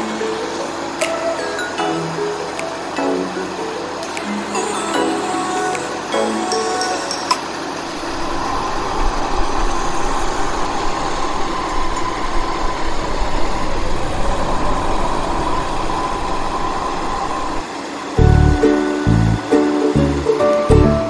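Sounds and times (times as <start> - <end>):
heavy diesel machinery rumbling: 18.2 - 21.0.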